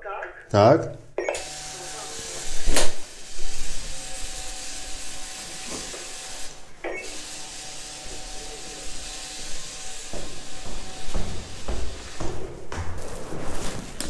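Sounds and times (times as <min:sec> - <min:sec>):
intercom door buzzer buzzing: 0:01.2 - 0:11.7.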